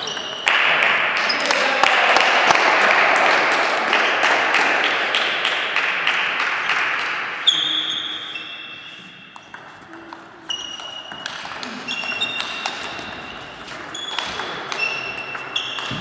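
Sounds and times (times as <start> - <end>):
loud even hall noise: 0.0 - 16.0
table tennis ball hard hits: 9.2 - 16.0.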